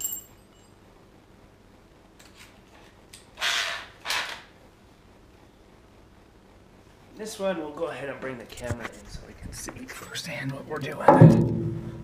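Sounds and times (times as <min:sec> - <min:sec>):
sharp metallic clink: 0:00.0 - 0:00.8.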